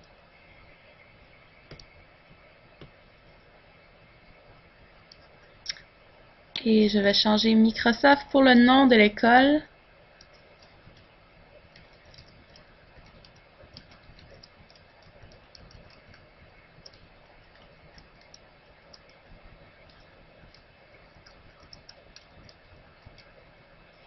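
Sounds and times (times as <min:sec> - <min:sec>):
keyboard typing: 0:01.7 - 0:02.0, 0:10.2 - 0:24.0.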